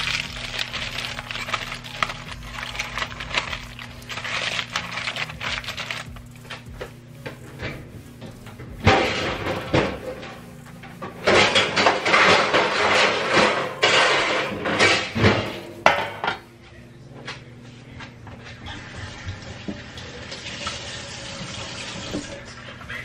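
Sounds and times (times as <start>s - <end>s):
metal pans and dishes clattering: 0.0s - 16.5s.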